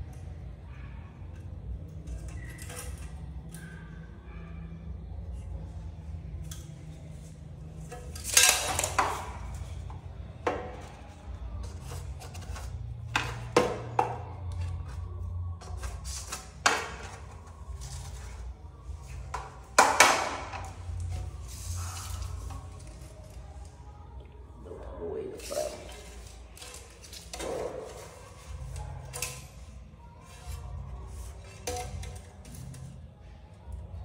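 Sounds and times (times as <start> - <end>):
low steady hum: 0.0 - 34.0.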